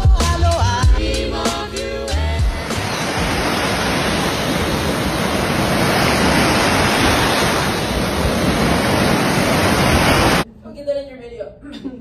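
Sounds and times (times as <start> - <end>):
waves washing on sandy beach: 2.6 - 10.4.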